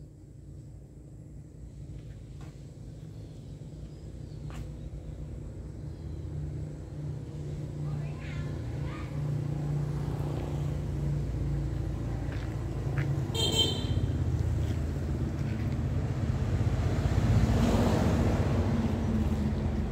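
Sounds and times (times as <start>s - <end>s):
vehicle engine running: 1.0s - 19.9s
short horn toot: 13.4s - 14.1s.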